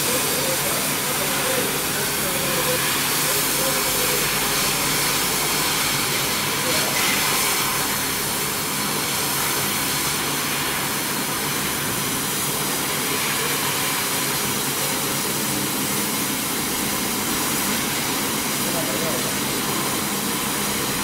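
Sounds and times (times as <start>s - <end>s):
laser cutter air hiss: 0.0s - 21.0s.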